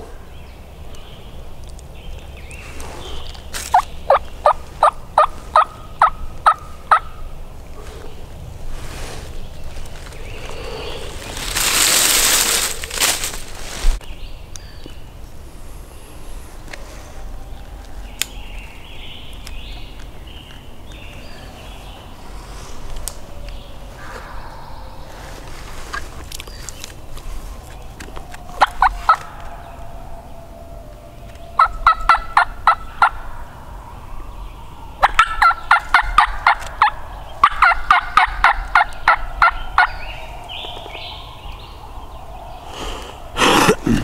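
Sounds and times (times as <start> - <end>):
songbird singing: 0.0 - 44.0
turkey yelping: 3.7 - 7.2, 28.5 - 29.8, 31.6 - 33.3, 35.0 - 40.0.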